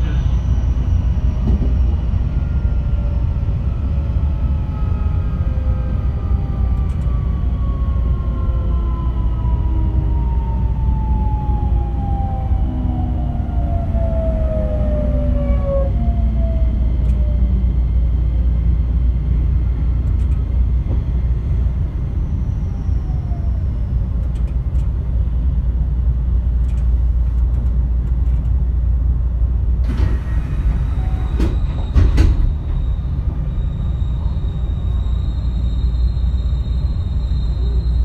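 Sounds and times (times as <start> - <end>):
train wheels rumbling on rail: 0.0 - 38.0.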